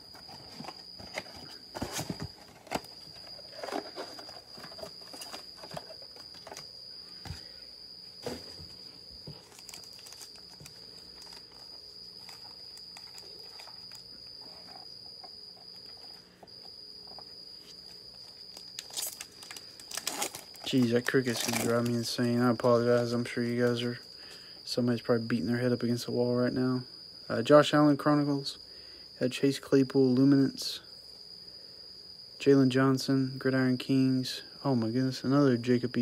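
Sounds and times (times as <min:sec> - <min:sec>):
foil packs crinkling: 0:00.0 - 0:06.6, 0:08.2 - 0:14.8, 0:18.2 - 0:23.1
cricket chirping: 0:00.0 - 0:36.0
cardboard box being opened: 0:00.1 - 0:06.6.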